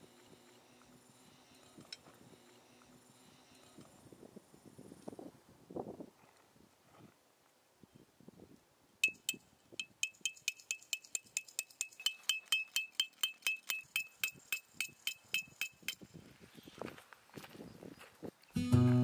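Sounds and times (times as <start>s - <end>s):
hammer striking metal tent peg: 9.0s - 16.0s.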